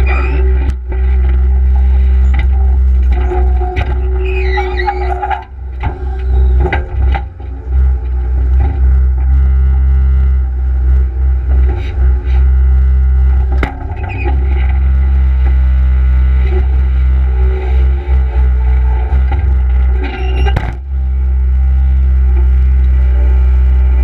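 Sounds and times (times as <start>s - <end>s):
diesel engine rumbling: 0.0s - 24.0s.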